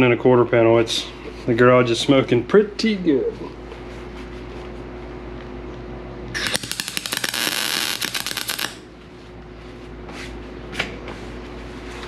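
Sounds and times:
welder crackling: 6.4 - 8.8.

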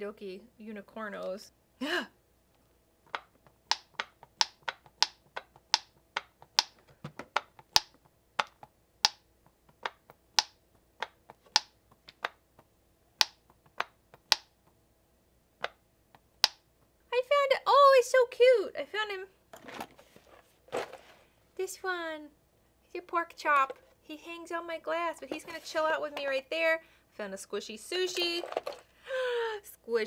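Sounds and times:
plastic toy clicking: 3.1 - 12.4.

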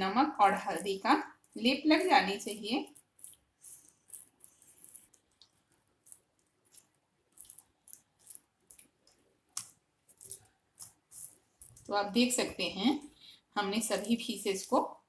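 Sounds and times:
wet squelches of fingers rubbing fish: 2.8 - 12.0.

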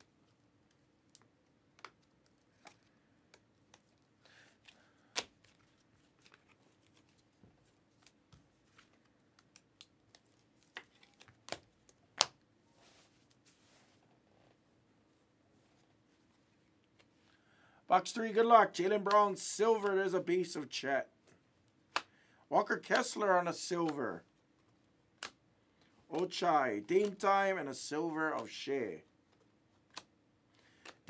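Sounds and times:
cards clicking and tapping: 1.0 - 4.0, 29.3 - 31.0.

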